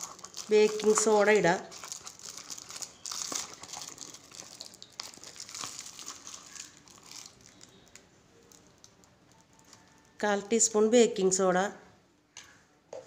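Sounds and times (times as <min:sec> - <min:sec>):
plastic packaging crinkling: 0:00.0 - 0:10.2.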